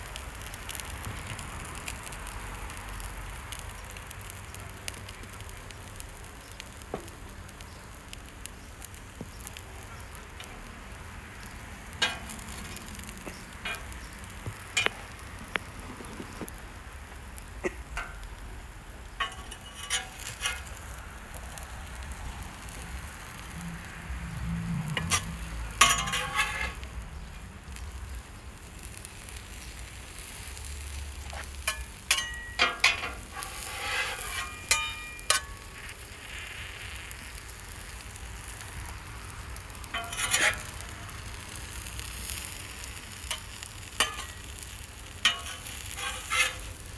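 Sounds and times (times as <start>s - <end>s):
food sizzling on a griddle: 0.0s - 46.9s
metal spatulas scraping griddle: 12.0s - 12.6s, 19.2s - 20.8s, 24.8s - 26.8s, 31.2s - 36.3s, 39.9s - 40.9s, 43.2s - 46.9s.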